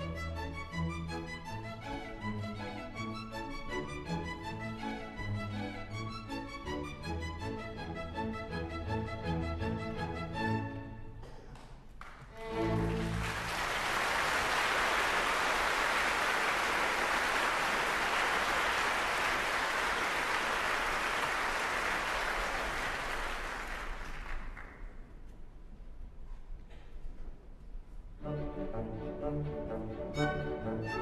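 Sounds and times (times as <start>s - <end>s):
audience applause: 11.5s - 25.0s.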